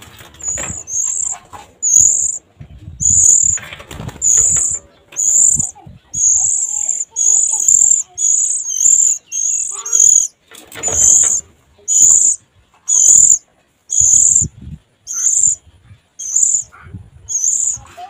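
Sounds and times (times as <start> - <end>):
nestlings high thin calls: 0.0 - 18.0.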